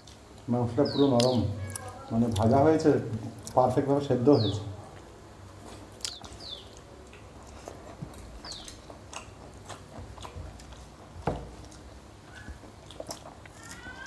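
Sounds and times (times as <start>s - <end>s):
wet chewing and lip smacks: 5.9s - 14.0s.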